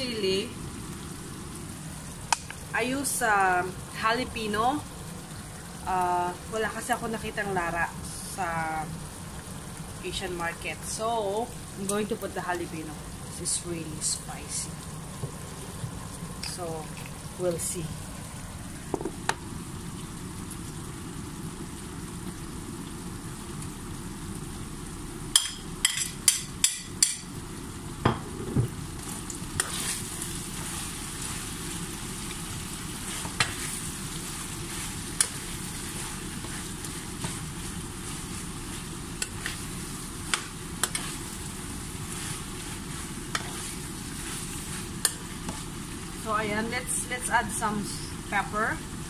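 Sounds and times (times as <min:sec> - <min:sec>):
spoon stirring in pan: 0:29.0 - 0:46.1.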